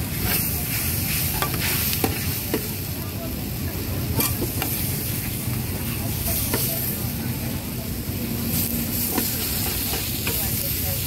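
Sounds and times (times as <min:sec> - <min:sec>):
food sizzling in hot oil: 0:00.0 - 0:11.0
metal utensil scraping pan: 0:04.2 - 0:04.8.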